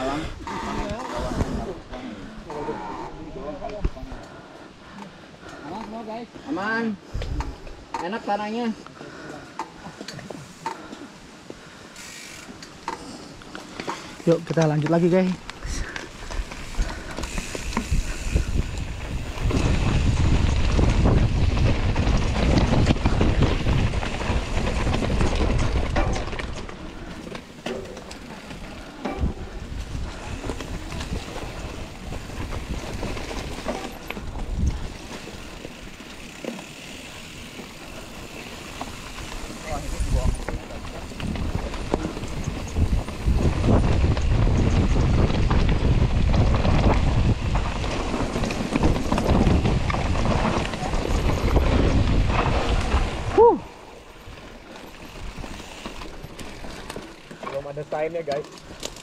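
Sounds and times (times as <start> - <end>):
bike rattling over bumps: 0.0 - 4.2, 9.7 - 59.0
wind buffeting the microphone: 7.0 - 7.9, 15.2 - 27.2, 28.3 - 57.2
tyres rumbling on dirt: 13.0 - 59.0.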